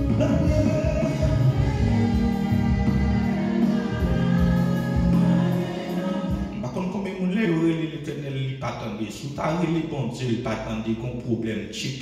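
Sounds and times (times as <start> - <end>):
man singing: 0.0 - 8.0
gospel music with singing: 0.0 - 10.0.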